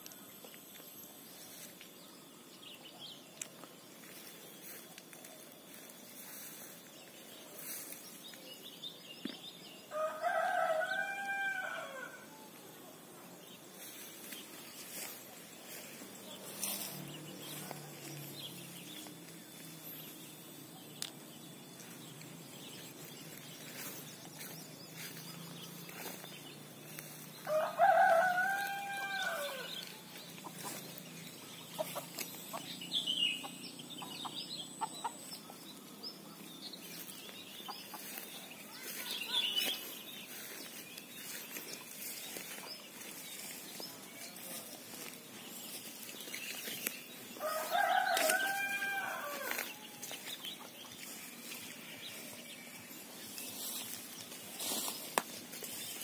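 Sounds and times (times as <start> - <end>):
rooster crowing: 9.9 - 12.5, 27.4 - 30.1, 47.4 - 50.3.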